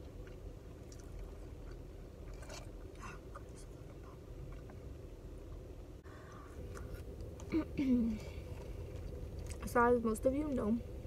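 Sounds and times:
person chewing crunchy food: 0.0s - 4.9s
steady low hum: 0.0s - 11.0s.

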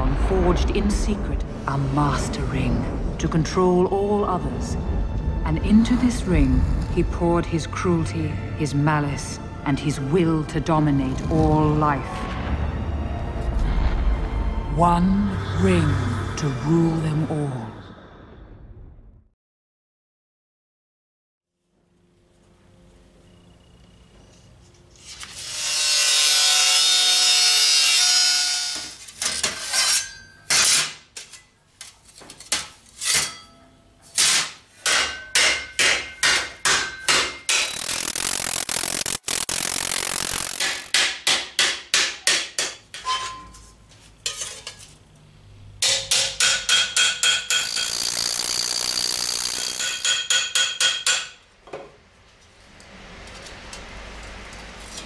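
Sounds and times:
hissing power tool on steel: 47.6s - 50.0s.

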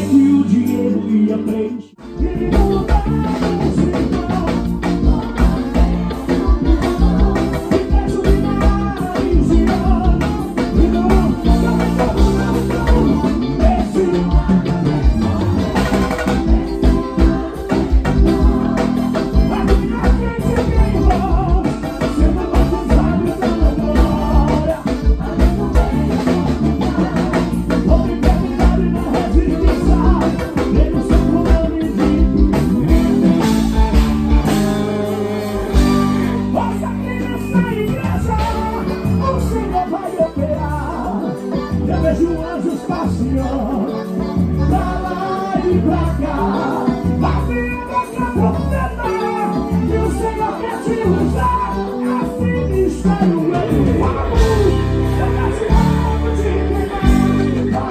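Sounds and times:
electric guitar: 0.0s - 57.9s
keyboards: 0.0s - 57.9s
live rock band: 0.0s - 57.9s
person singing: 0.0s - 57.9s
drums beating: 2.2s - 39.0s, 53.4s - 57.9s.

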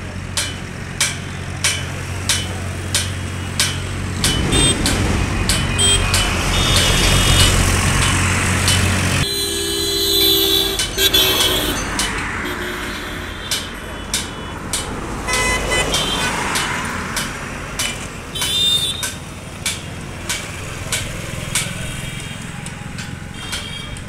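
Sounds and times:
regular ticking: 0.0s - 24.0s
vehicle engine humming: 0.0s - 24.0s
vehicle horn tooting: 4.3s - 5.0s, 5.6s - 16.8s, 18.3s - 19.2s, 21.8s - 24.0s.

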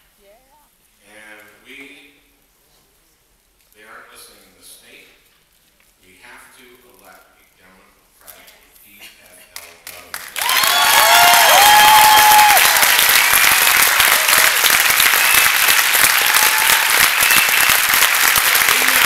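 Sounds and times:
audience clapping: 9.5s - 19.0s
cheering shouts: 10.4s - 19.0s.

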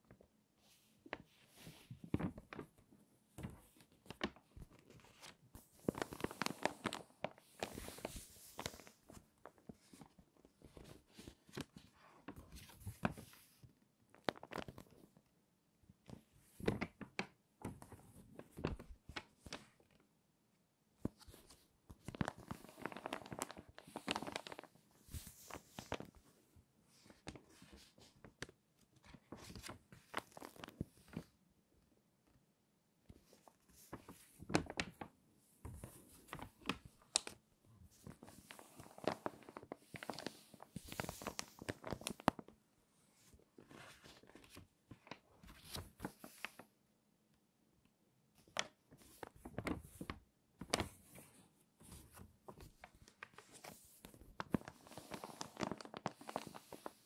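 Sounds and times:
paper pages crackling: 1.1s - 2.8s, 3.4s - 15.0s, 21.0s - 26.2s, 27.0s - 31.3s, 33.7s - 42.5s, 43.6s - 46.6s, 48.4s - 57.0s.

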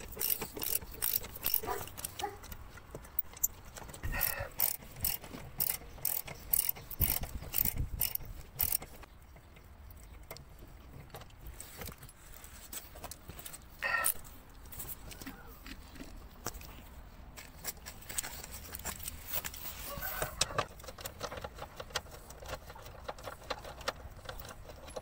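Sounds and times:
socket ratchet clicking: 0.0s - 9.0s.

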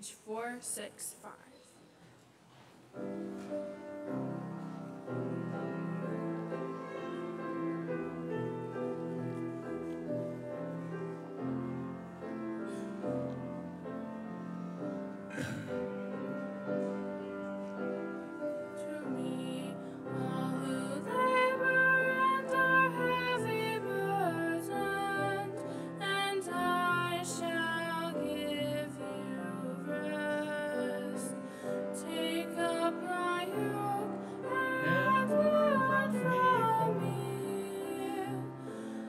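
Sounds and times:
keyboard playing sustained chords: 3.5s - 38.7s
woman singing: 18.8s - 38.7s.

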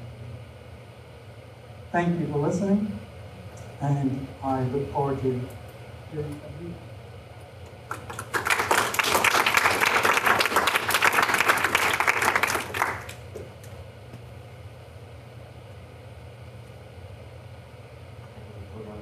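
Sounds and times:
low steady hum: 0.0s - 19.0s
audience applauding: 7.9s - 13.2s.

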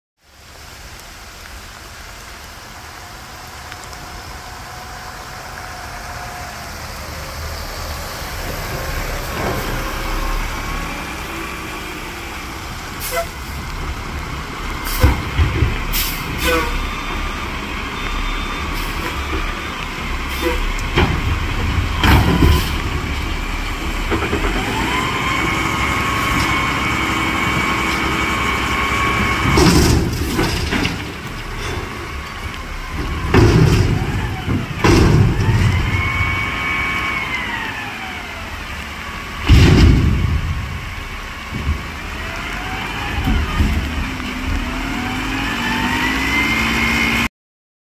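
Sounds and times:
garbage truck engine running: 6.8s - 47.2s
dumpster tipping bang: 21.0s - 22.9s, 29.3s - 31.6s, 32.9s - 36.6s, 39.4s - 41.8s
hydraulic whine: 32.6s - 38.6s.

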